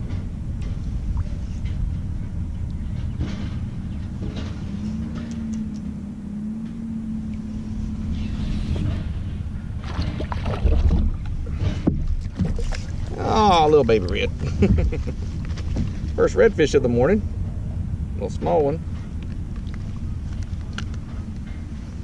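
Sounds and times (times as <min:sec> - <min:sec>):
faint steady hum: 0:00.0 - 0:22.0
wind rumbling on microphone: 0:00.0 - 0:22.0
water splashes and knocks: 0:09.7 - 0:16.5.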